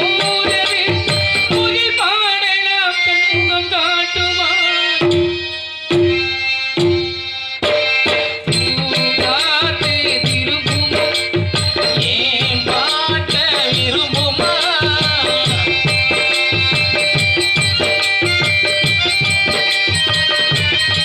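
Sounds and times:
hand drums: 0.0 - 2.4, 3.3 - 21.0
wavering melody: 4.9 - 21.0.

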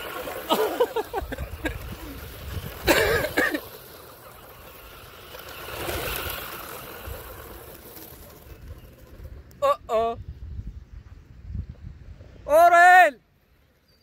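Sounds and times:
rc truck churning sand: 0.0 - 10.1
wind rumble on microphone: 1.0 - 3.4, 8.4 - 12.5.

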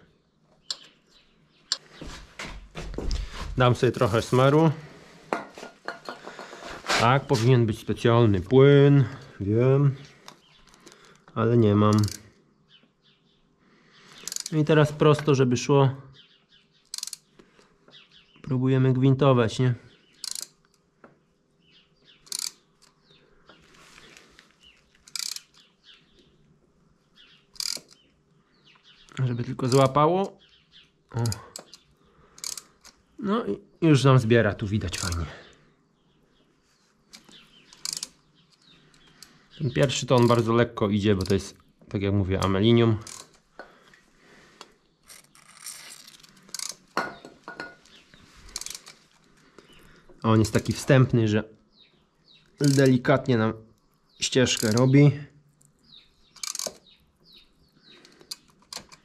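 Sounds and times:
birds chirping: 0.0 - 59.0
hand tap clicking and scraping metal: 0.5 - 1.0, 11.9 - 12.2, 14.2 - 15.3, 16.9 - 17.3, 20.2 - 20.8, 22.2 - 23.6, 24.9 - 25.7, 27.6 - 28.1, 29.7 - 30.0, 31.2 - 33.0, 37.1 - 40.5, 42.4 - 43.8, 44.6 - 50.2, 52.5 - 53.0, 54.5 - 55.0, 55.6 - 57.0, 58.0 - 59.0.

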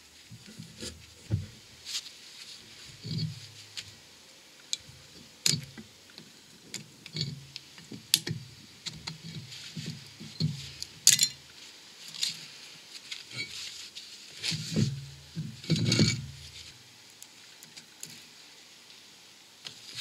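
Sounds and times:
dull handling noises: 7.2 - 11.3, 12.2 - 16.7
screwdriver metallic clicks and scrapes: 15.6 - 16.6.

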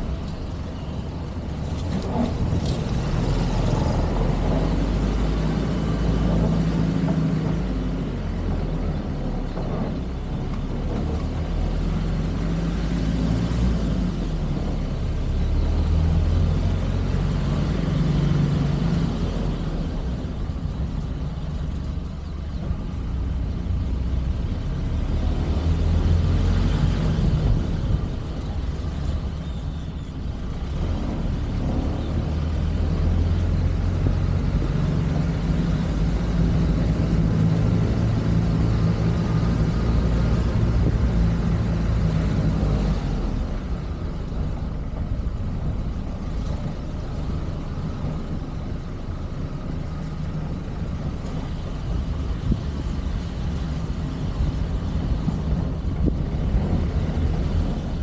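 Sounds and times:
tyres rolling on street: 0.0 - 58.0.

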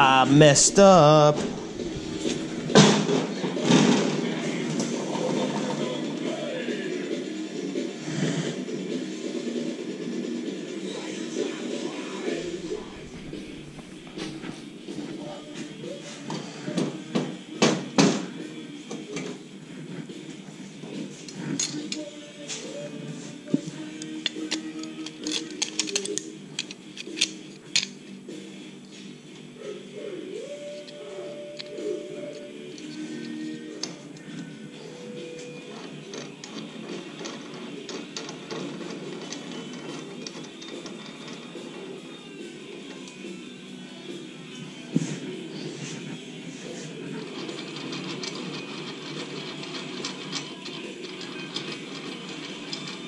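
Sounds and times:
metal clamp clicking and rattling: 24.0 - 27.9.

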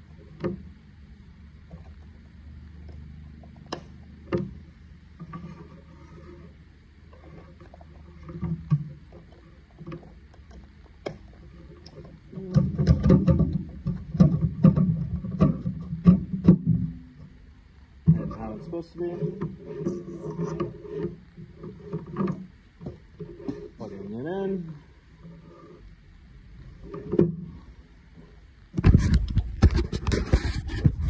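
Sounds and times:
plastic clicks and knocks: 8.2 - 17.3
rattling and knocking on metal frame: 11.8 - 17.3.

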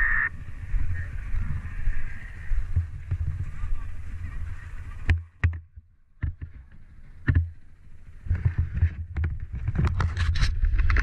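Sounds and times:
wind buffeting microphone: 0.0 - 5.6, 6.2 - 11.0
rustling and knocking: 5.0 - 7.6, 8.2 - 11.0.

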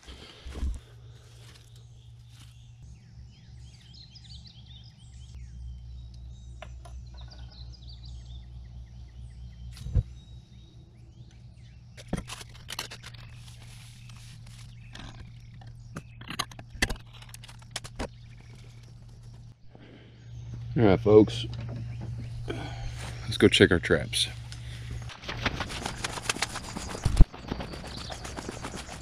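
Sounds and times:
crackling rustles: 0.0 - 2.8, 12.0 - 19.6, 24.4 - 29.0
birds chirping: 0.0 - 29.0
low hum: 0.0 - 29.0.

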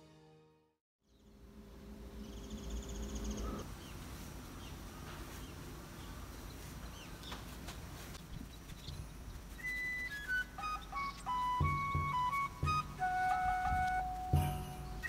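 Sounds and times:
bird chirps: 2.1 - 7.6, 8.2 - 15.0
background music: 9.8 - 15.0.

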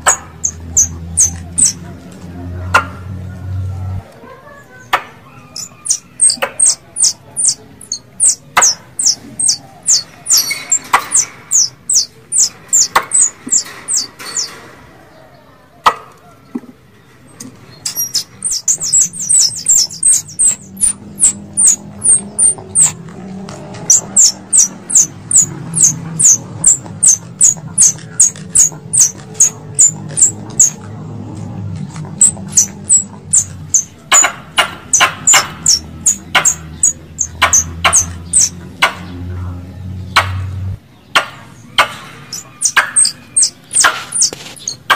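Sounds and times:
squirrel chirping: 0.0 - 1.9, 5.2 - 14.5, 17.7 - 23.0, 23.8 - 30.8, 32.1 - 39.1, 41.6 - 44.9.

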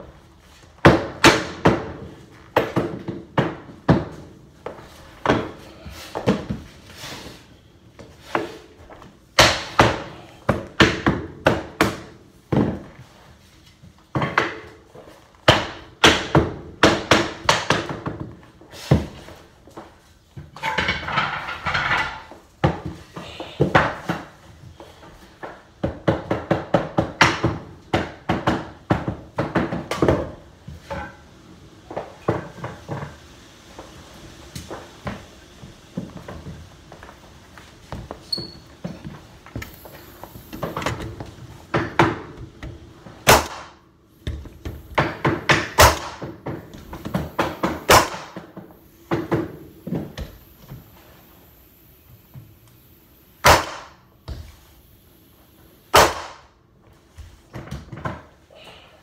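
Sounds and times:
hammering on wooden floorboards: 0.8 - 5.5, 9.4 - 13.0, 15.4 - 18.4, 25.4 - 31.0, 41.7 - 50.4.

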